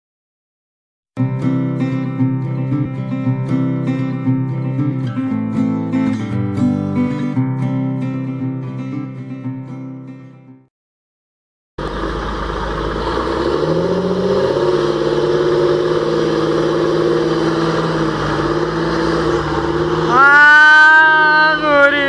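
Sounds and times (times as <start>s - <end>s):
acoustic guitar music: 1.2s - 10.7s, 14.4s - 22.0s
tractor diesel engine under load: 11.8s - 22.0s.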